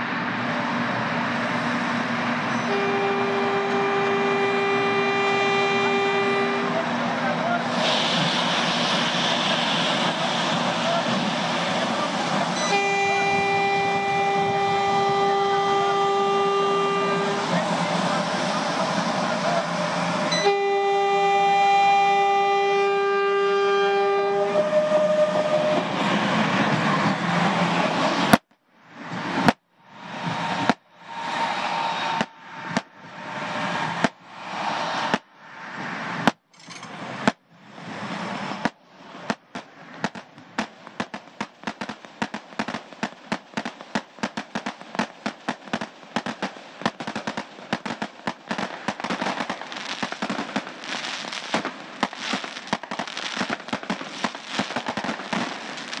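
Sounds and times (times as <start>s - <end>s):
train rushing: 0.0s - 28.4s, 29.0s - 56.0s
firecrackers crackling: 0.6s - 35.4s, 36.1s - 56.0s
train horn: 2.5s - 7.0s, 12.6s - 18.4s, 19.6s - 25.9s.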